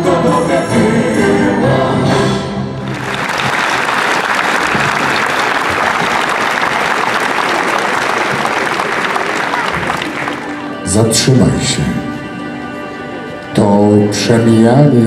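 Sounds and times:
audience applauding: 2.8 - 10.8.

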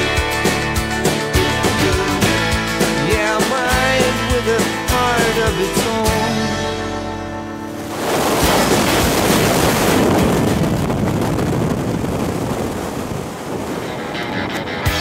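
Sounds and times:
wind blasting over microphone: 7.6 - 14.8.

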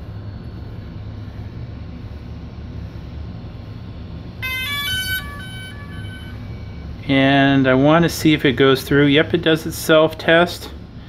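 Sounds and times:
steady low hum: 0.0 - 11.0
electronic start-up chime: 4.4 - 6.9.

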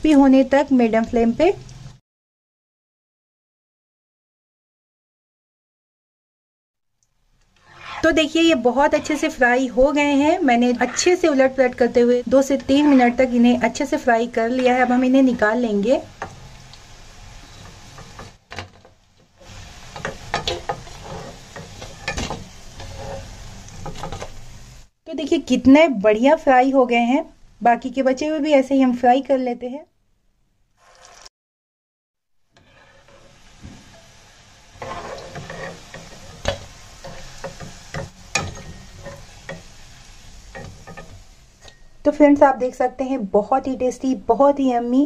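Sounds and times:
hot oil sizzling: 7.3 - 28.3, 30.7 - 31.3, 32.5 - 44.2
metal spatula scraping a pan: 7.6 - 18.4, 19.4 - 24.4, 32.5 - 42.0
metal spatula knocking on pan: 35.4 - 39.7.

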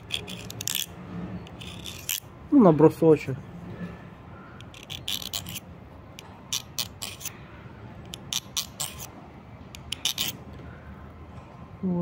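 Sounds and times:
file rasping on steel blade: 0.0 - 2.3, 4.6 - 5.6, 6.5 - 7.3, 8.1 - 9.1, 9.8 - 10.4.

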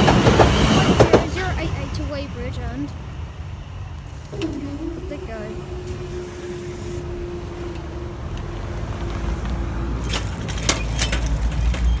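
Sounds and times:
barrier motor whining: 4.1 - 12.0.

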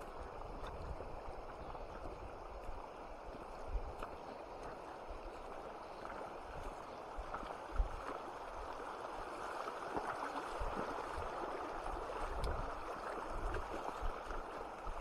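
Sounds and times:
river water over gravel: 0.0 - 15.0.

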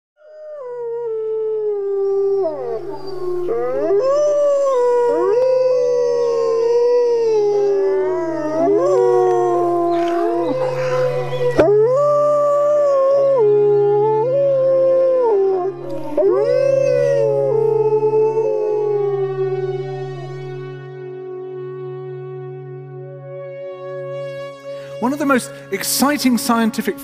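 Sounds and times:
wolves howling: 0.3 - 20.8.

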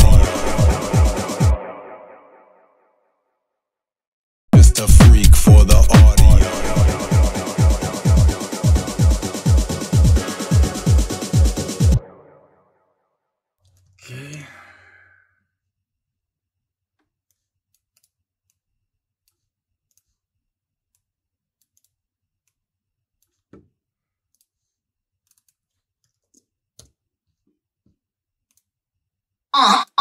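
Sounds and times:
computer keyboard and mouse clicks: 25.2 - 27.0.

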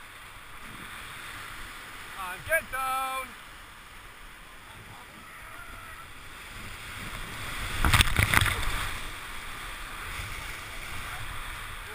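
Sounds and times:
whitewater rushing: 0.0 - 11.9
wave splashing over raft: 4.5 - 11.9.

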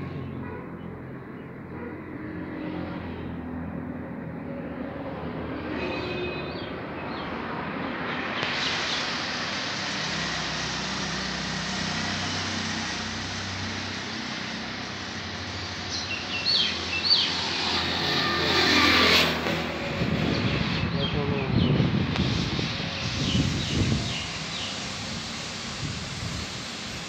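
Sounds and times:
vehicle engine passing: 0.0 - 25.5
street traffic: 0.0 - 27.0
birds chirping: 15.5 - 18.3.

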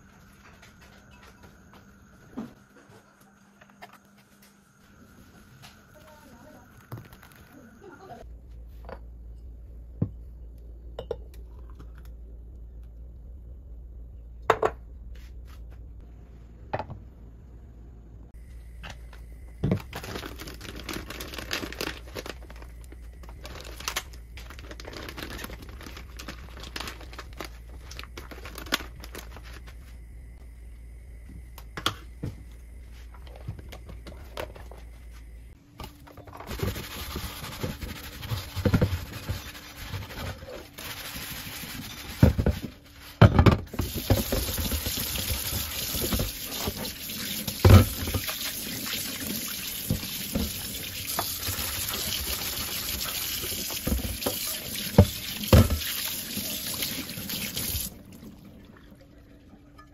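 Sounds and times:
plastic bags crinkling: 19.8 - 29.5
pan being scrubbed: 36.5 - 43.2
tap water running into sink: 43.8 - 58.5.

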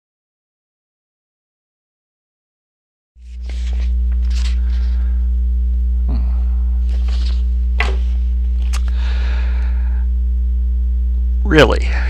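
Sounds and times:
electrical mains hum: 3.2 - 12.0
faint breaths: 4.4 - 5.4, 6.1 - 7.1, 8.8 - 10.1.

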